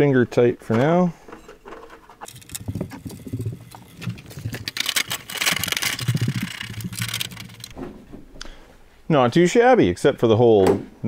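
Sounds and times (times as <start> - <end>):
metal bracket and screws rattling: 1.4 - 7.8.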